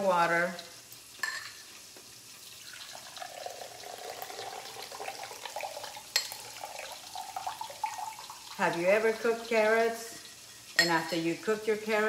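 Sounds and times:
liquid pouring into glass: 2.6s - 8.6s.

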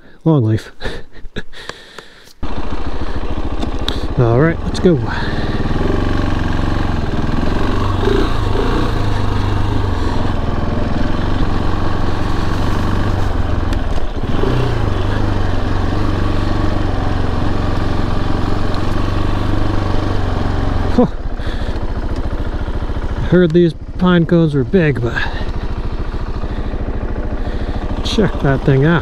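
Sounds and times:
motorcycle engine running: 1.8s - 29.0s.

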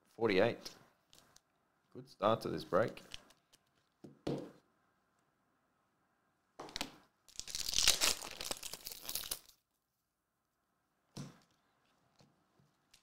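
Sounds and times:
foil wrapper tearing and crinkling: 7.3s - 9.6s.

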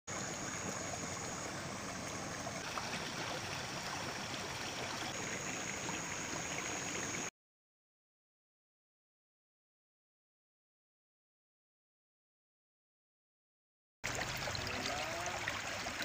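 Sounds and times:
water running through a channel: 0.1s - 7.3s, 14.0s - 16.0s.

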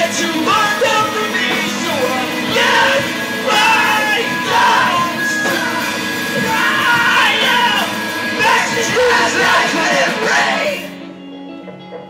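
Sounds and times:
live rock band playing: 0.0s - 12.0s
person yelling vocals: 6.4s - 8.0s.

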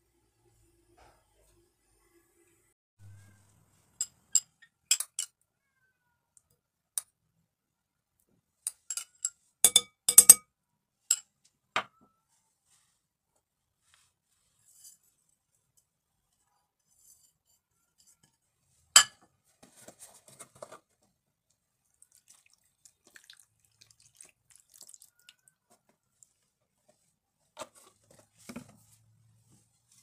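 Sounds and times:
metal spoon clinking on glass bowl: 4.0s - 5.4s, 8.7s - 10.5s, 19.0s - 19.2s.

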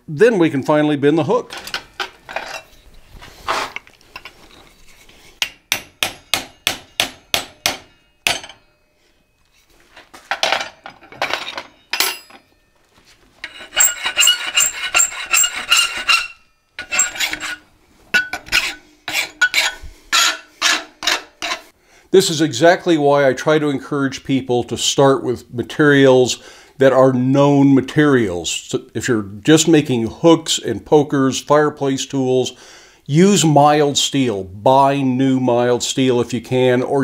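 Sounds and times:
file strokes ringing metallically: 4.2s - 10.0s, 11.7s - 21.8s
file rasping over hot steel: 13.4s - 21.7s.

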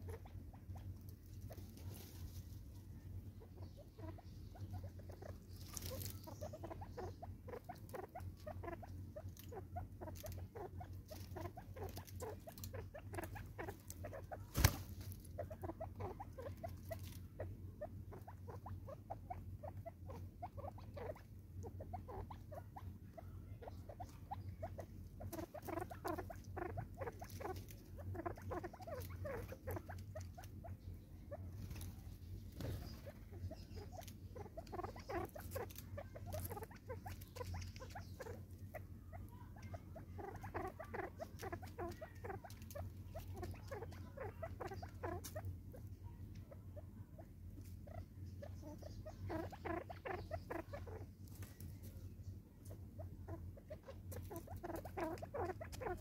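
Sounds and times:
birds pecking at plastic feeder: 31.7s - 45.4s.

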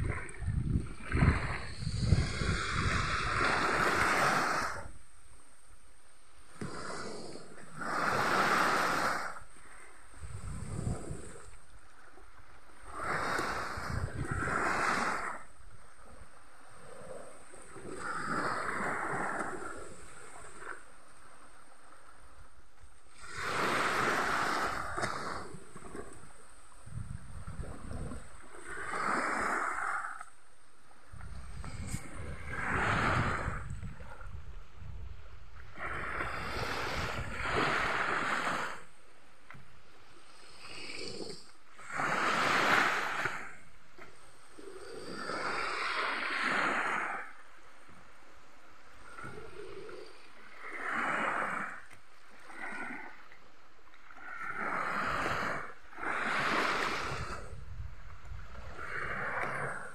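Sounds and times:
wind buffeting microphone: 0.0s - 4.8s, 10.1s - 11.4s, 13.0s - 15.2s, 26.8s - 28.3s, 31.1s - 38.7s, 56.2s - 59.9s
small waves washing on shore: 0.0s - 59.9s.

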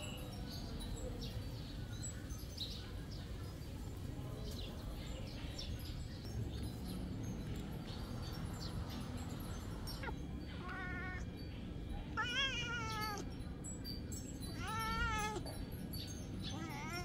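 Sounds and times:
cat meowing: 9.9s - 11.3s, 12.1s - 13.3s, 14.5s - 15.6s, 16.5s - 17.0s.

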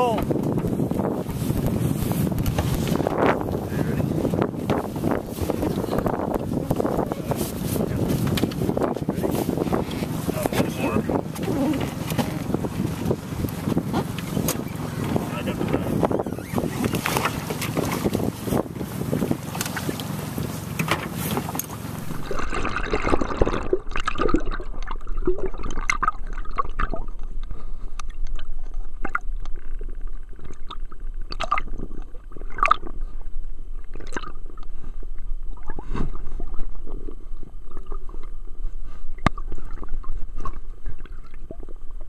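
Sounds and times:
water splashing: 0.0s - 42.0s
wind: 0.0s - 42.0s
sharp underwater clicks and crackles: 0.2s - 3.5s, 8.1s - 18.3s, 19.4s - 42.0s
underwater gurgling: 21.7s - 42.0s.

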